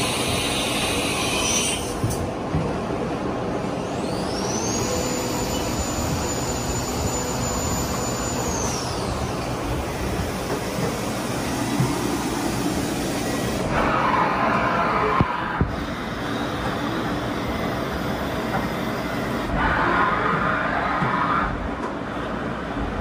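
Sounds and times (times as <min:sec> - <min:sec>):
machine shop noise: 0:00.0 - 0:23.0
spindle whine: 0:03.9 - 0:21.6.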